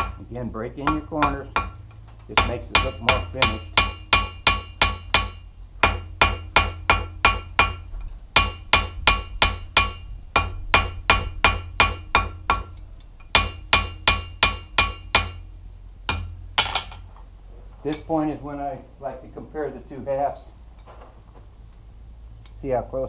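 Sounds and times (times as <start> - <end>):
hammer striking hot metal on anvil: 0.0 - 17.1.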